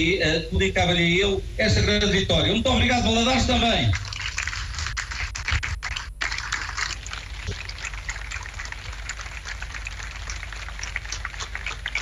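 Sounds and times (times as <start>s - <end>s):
crowd applauding: 3.9s - 12.0s.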